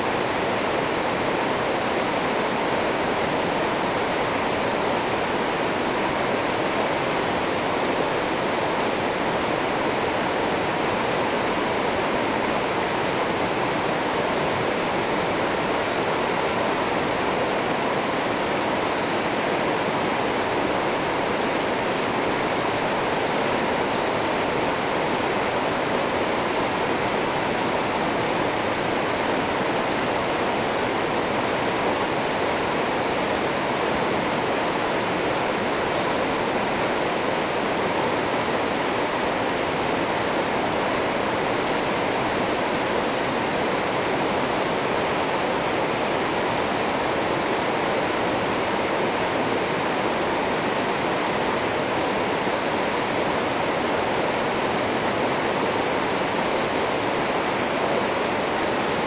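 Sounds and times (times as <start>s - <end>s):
river rapids rushing over rocks: 0.0s - 59.0s.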